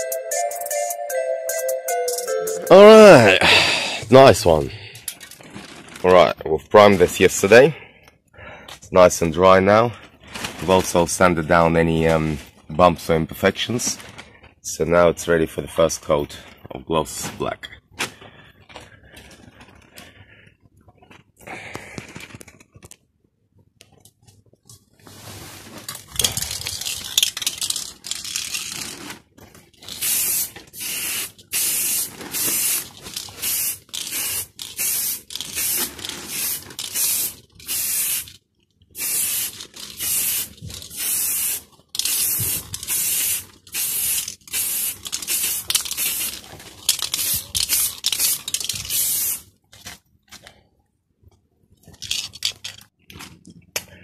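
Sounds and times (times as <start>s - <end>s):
aerosol spray can hissing: 30.0s - 38.3s, 39.0s - 46.4s, 47.0s - 49.4s.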